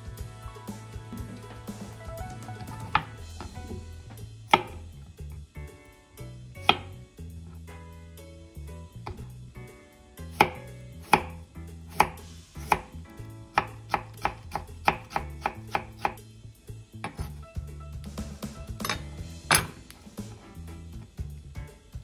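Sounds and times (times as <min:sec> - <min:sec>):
knife chopping on wooden board: 0:02.8 - 0:03.8, 0:04.5 - 0:04.8, 0:06.6 - 0:07.0, 0:10.3 - 0:16.2, 0:17.0 - 0:17.4.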